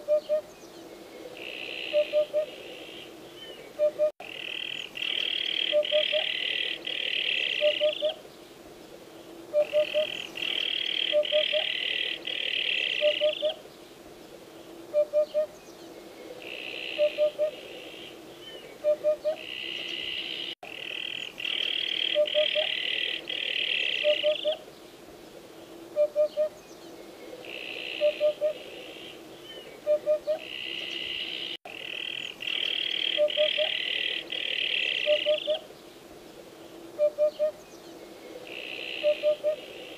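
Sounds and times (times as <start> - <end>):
hoopoe hooting song: 7.6 - 8.2, 9.5 - 10.2, 12.5 - 13.6, 17.0 - 17.6, 24.0 - 24.6, 35.0 - 35.7.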